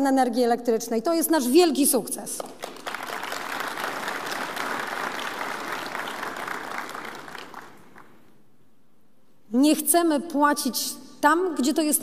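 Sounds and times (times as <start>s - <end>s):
audience applauding: 2.6s - 8.2s.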